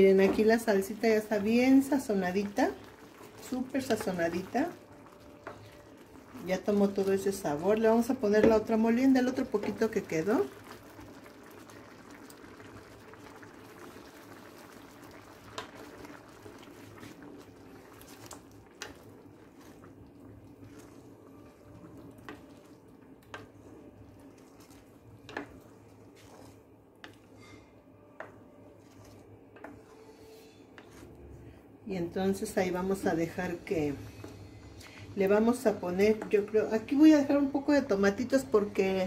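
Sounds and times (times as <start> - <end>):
wooden spoon stirring: 0.0 - 39.0
sauce simmering and bubbling: 0.1 - 31.8, 32.4 - 38.2
sauce pouring: 10.4 - 26.7.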